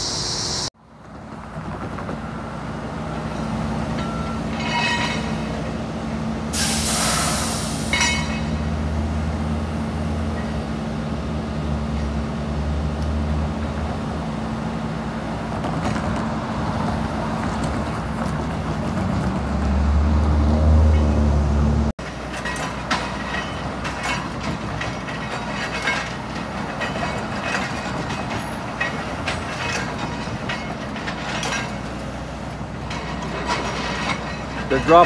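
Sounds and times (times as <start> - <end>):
hiss of released air: 6.5 - 8.0.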